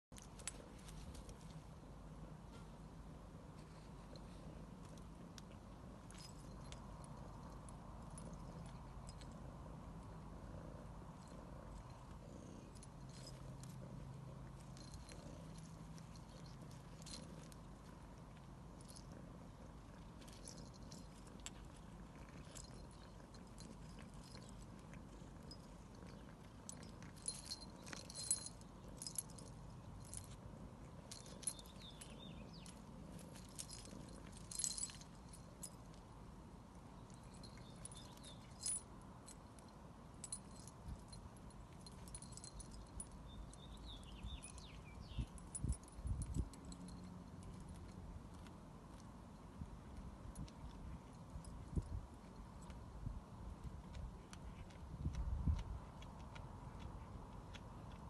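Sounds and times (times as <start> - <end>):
low steady rumble: 0.2 - 58.0
cat chewing: 10.4 - 36.0, 47.0 - 58.0.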